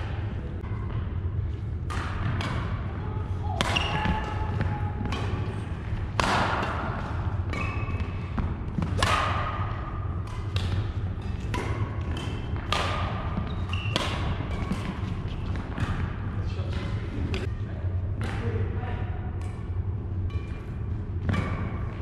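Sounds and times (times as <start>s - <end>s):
steady low hum: 0.0s - 22.0s
rackets hitting shuttlecock: 1.8s - 17.5s.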